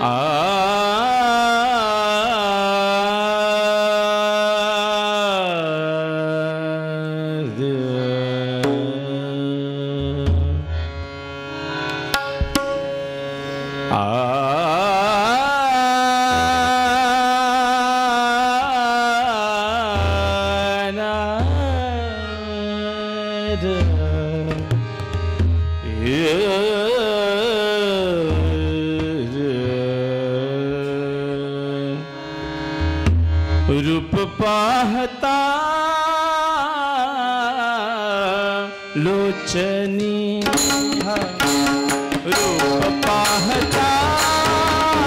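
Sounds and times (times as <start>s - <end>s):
man singing devotional song: 0.0s - 11.2s, 13.0s - 32.8s, 33.5s - 45.0s
harmonium: 0.0s - 45.0s
hand drums: 40.4s - 45.0s.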